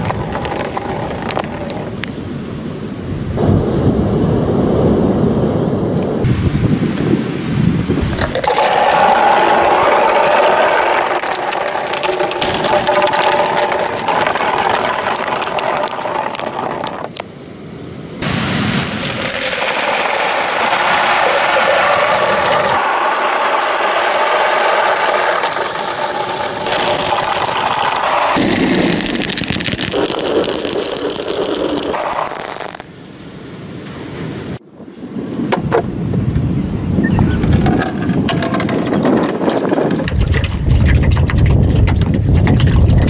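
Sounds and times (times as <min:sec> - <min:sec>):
small balls rattling down plastic tracks: 0:00.0 - 0:02.0, 0:08.1 - 0:17.2, 0:18.8 - 0:28.4, 0:30.0 - 0:32.9, 0:37.4 - 0:40.1.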